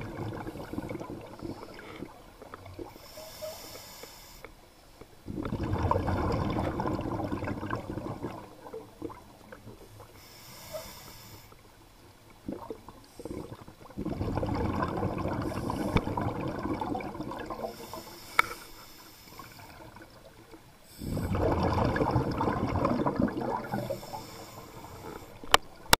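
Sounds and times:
exhaled bubbles gushing: 0.0 - 3.0, 5.3 - 10.2, 12.3 - 18.0, 19.3 - 26.0
regulator inhale hiss: 2.9 - 4.6, 10.1 - 11.6, 15.4 - 16.2, 17.7 - 19.9, 20.8 - 21.4, 23.7 - 25.5.

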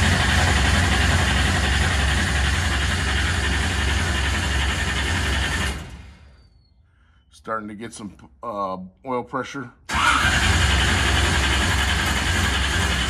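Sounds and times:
engine starter cranking: 9.9 - 13.0.

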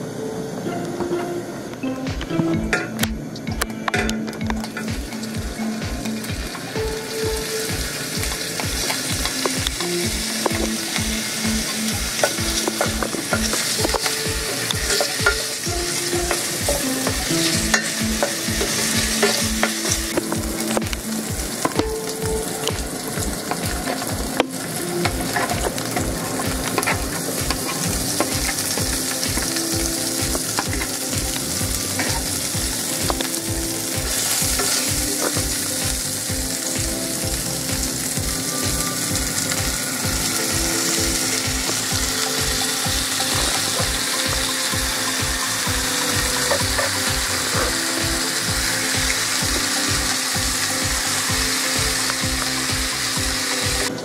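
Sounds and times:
sausage sizzling in a pan: 4.7 - 54.0.

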